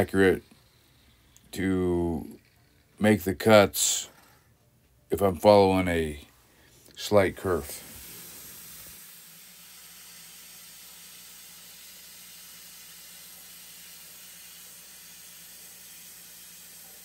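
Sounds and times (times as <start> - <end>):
faint low hum: 0.0 - 7.6
plasma cutter hissing: 7.1 - 17.0.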